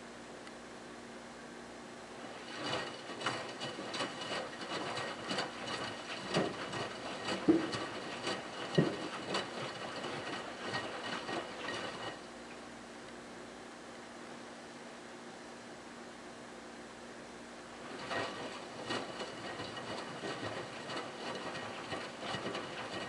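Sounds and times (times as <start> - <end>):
water sloshing and splashing: 2.2 - 12.2, 17.8 - 23.0
washing machine drum tumbling: 2.2 - 12.3, 17.8 - 23.0.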